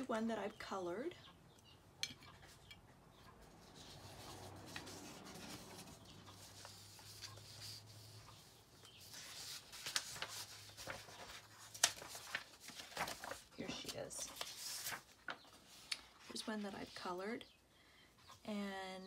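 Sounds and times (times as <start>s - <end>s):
paper sheets rustling: 3.8s - 8.2s, 9.0s - 16.5s.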